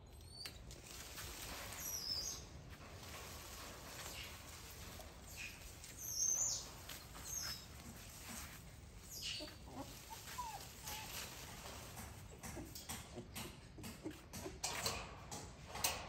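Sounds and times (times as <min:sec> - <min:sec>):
small birds chirping: 0:00.0 - 0:13.0
faint rustling: 0:00.4 - 0:13.1.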